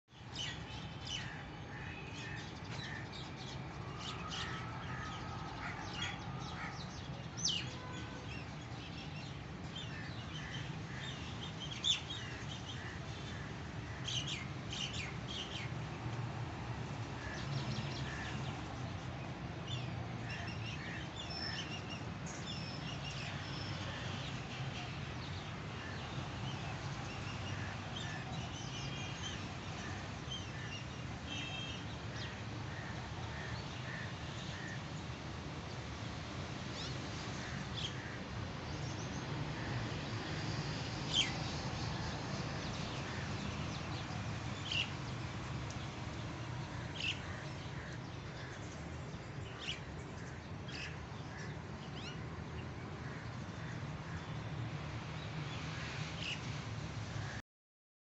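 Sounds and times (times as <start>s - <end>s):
small birds chirping and tweeting: 36.1s - 54.4s.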